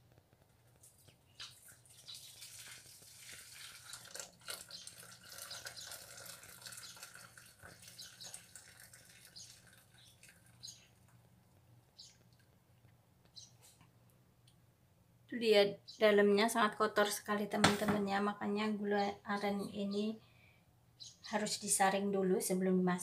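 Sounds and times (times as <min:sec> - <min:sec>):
syrup pouring through strainer: 0:01.4 - 0:10.6.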